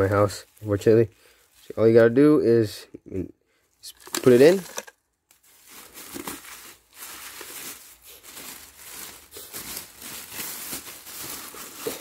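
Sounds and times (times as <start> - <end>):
plastic bag crinkling: 3.8 - 12.0.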